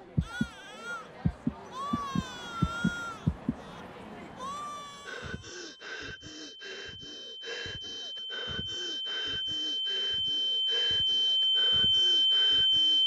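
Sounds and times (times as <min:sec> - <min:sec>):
rapid panting breaths: 0:00.0 - 0:13.0
high-pitched ringing tone: 0:04.5 - 0:13.0.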